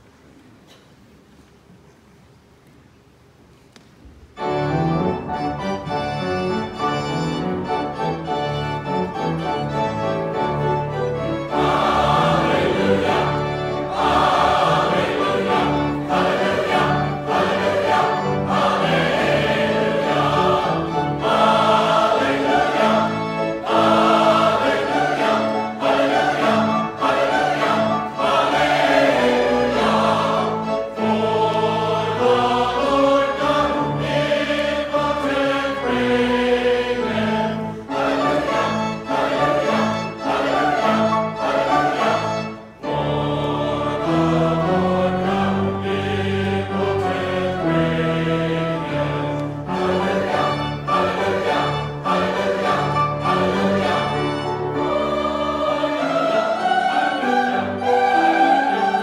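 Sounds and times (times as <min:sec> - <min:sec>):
instrumental accompaniment: 0:04.3 - 0:59.0
choir singing: 0:04.4 - 0:59.0.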